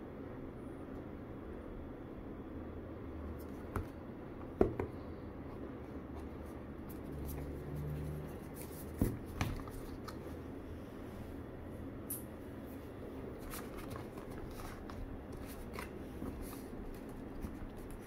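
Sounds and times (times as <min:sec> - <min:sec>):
low background hum: 0:00.0 - 0:18.0
taps and knocks on cardboard box: 0:04.6 - 0:05.0
paper-like rustling: 0:13.4 - 0:18.0.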